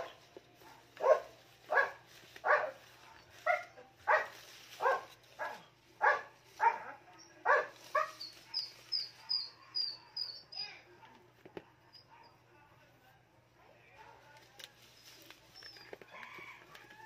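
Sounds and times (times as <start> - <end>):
dog barking: 0.0 - 11.3, 12.0 - 12.4.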